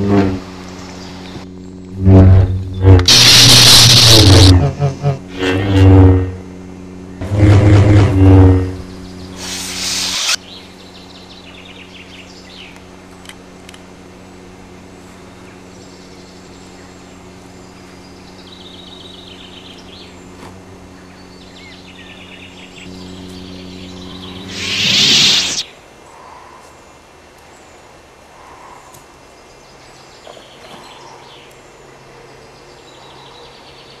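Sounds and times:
lightsaber electric hum: 0.0 - 26.0
birds chirping: 15.4 - 31.7.

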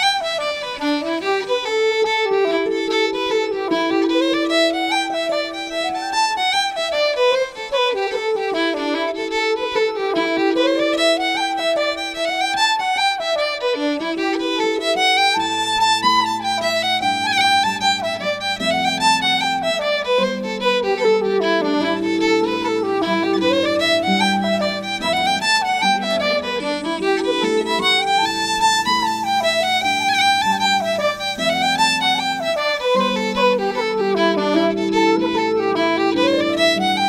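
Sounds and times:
fiddle folk melody: 0.0 - 37.0
lower steady accompaniment: 0.0 - 37.0.

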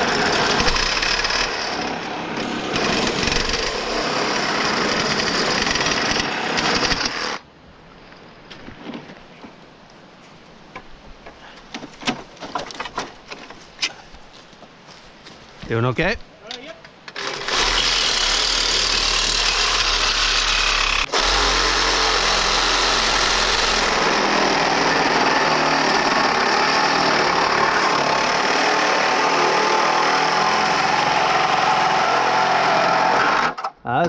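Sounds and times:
reciprocating saw cutting steel: 0.0 - 7.4, 17.2 - 33.6.

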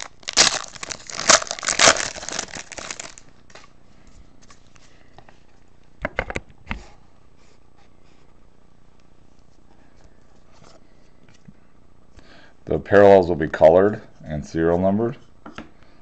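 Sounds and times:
foil pack tearing and crinkling: 0.0 - 3.6.

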